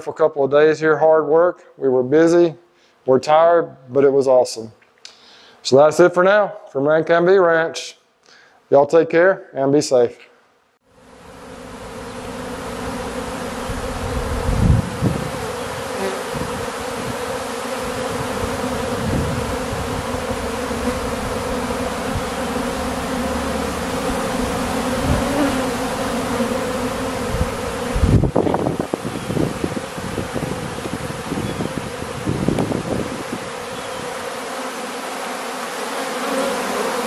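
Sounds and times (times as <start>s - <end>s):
honeybees buzzing: 10.9s - 37.0s.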